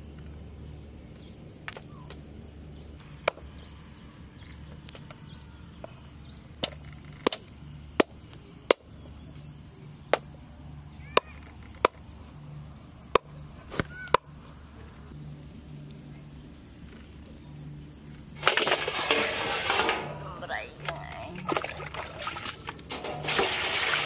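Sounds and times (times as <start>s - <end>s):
faint bird chirps: 1.1s - 11.8s, 13.2s - 17.8s.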